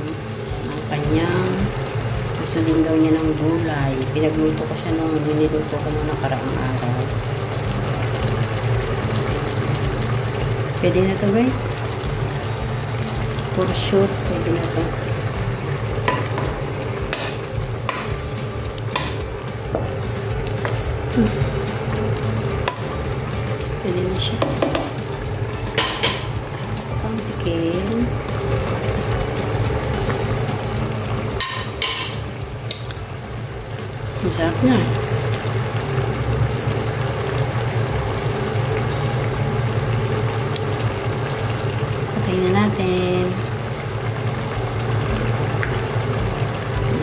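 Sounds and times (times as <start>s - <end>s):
food sizzling: 0.0s - 47.0s
stew simmering in a pot: 0.0s - 47.0s
spoon scraping and knocking pan: 24.4s - 25.0s.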